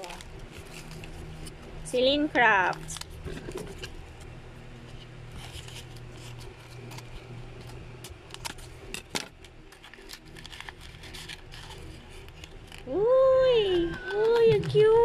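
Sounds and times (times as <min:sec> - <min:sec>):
packaging rustling: 0:00.0 - 0:04.3, 0:05.0 - 0:12.9
faint low hum: 0:00.0 - 0:15.0
packaging clicks: 0:08.0 - 0:12.9.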